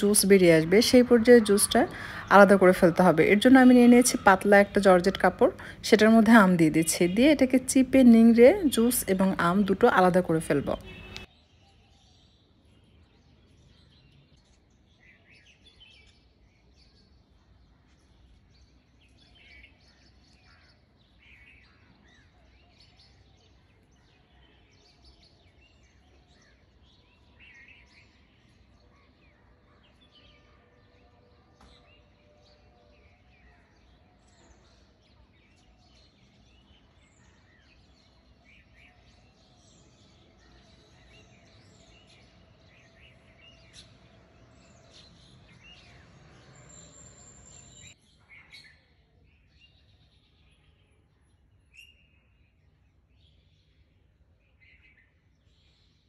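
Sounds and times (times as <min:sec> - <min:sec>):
distant bird chirps: 0:00.0 - 0:16.3, 0:24.5 - 0:50.6.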